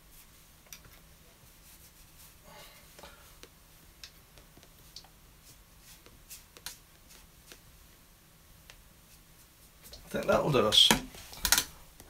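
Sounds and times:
brush rubbing on paper: 1.4s - 2.4s, 5.4s - 7.6s.

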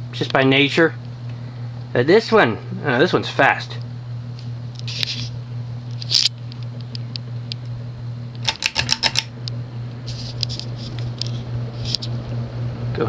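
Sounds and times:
ceiling fan motor hum: 0.0s - 13.0s
sharp clicks: 8.4s - 9.6s.

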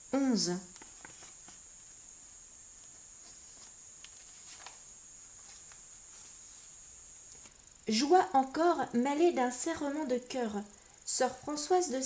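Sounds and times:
faint hiss: 0.0s - 12.0s
book pages rustling: 0.8s - 1.7s, 2.8s - 6.7s.

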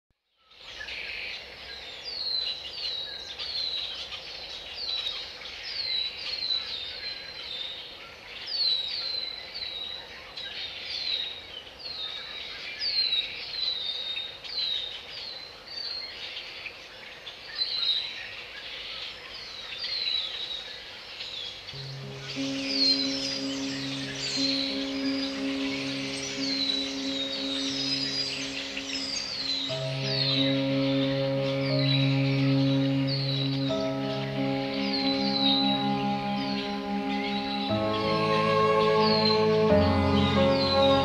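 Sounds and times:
background bird calls: 21.6s - 41.0s.

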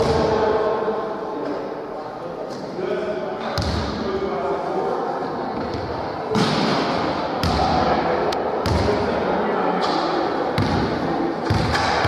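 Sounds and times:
background chatter: 0.0s - 12.0s
basketball bouncing on hall floor: 3.6s - 4.0s, 7.4s - 7.8s, 8.6s - 9.0s, 10.6s - 12.0s.

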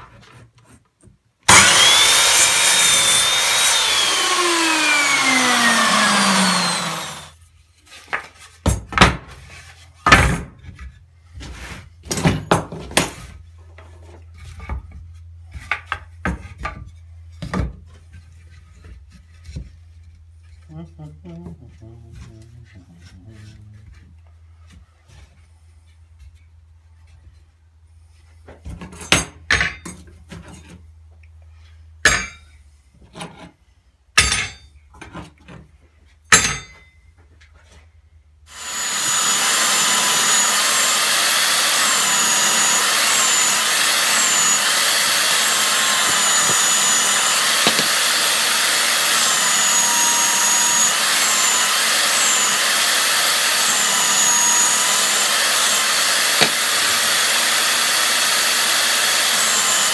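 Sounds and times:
belt sander sanding wood: 1.5s - 8.0s, 38.5s - 59.9s.

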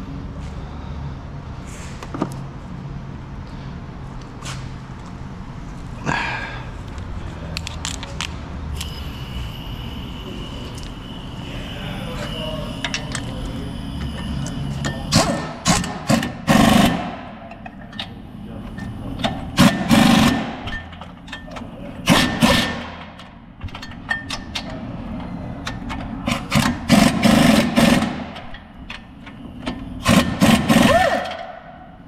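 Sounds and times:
impact wrench bursts: 8.8s - 18.2s, 18.8s - 24.7s, 25.7s - 31.8s.

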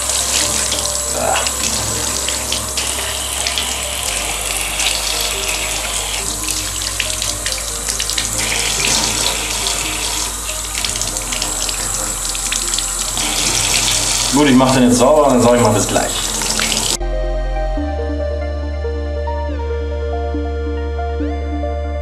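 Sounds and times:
tap water running into bathtub: 0.0s - 17.0s.

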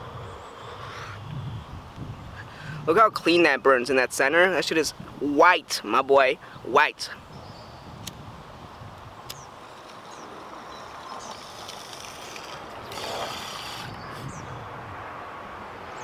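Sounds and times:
rush of air: 11.2s - 15.0s.

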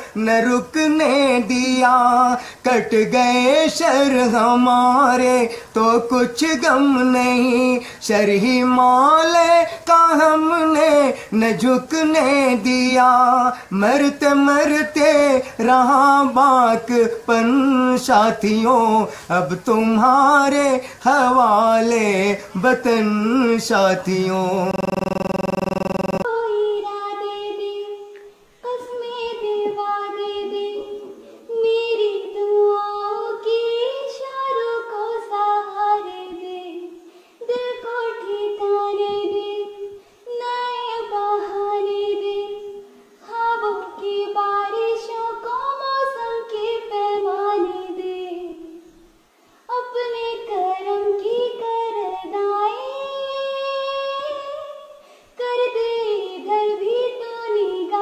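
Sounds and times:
girl singing unaccompanied: 26.3s - 49.0s, 49.7s - 58.0s.

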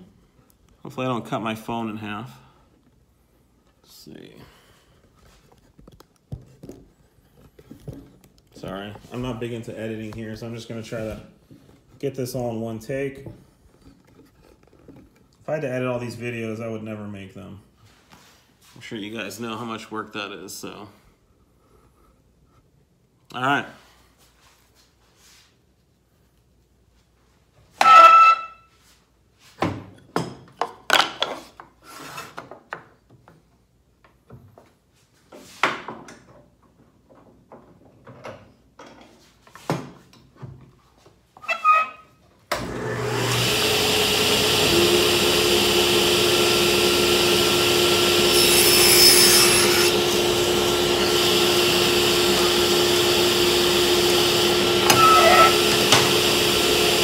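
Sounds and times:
workshop machine whirring hum: 42.6s - 57.0s.

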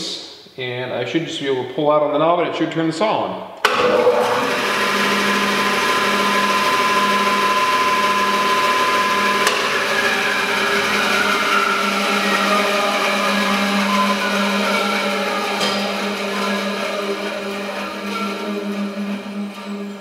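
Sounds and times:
bandsaw running: 3.7s - 20.0s.

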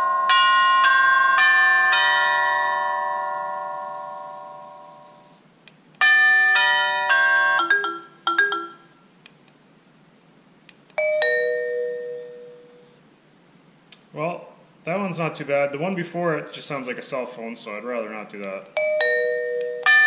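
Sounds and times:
doorbell chime playing tunes: 0.0s - 5.4s, 6.0s - 9.0s, 11.0s - 13.0s, 18.8s - 20.0s.

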